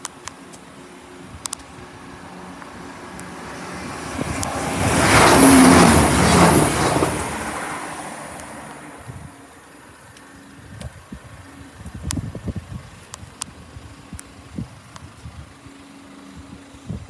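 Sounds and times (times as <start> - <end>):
diesel train passing: 0.0 - 11.8.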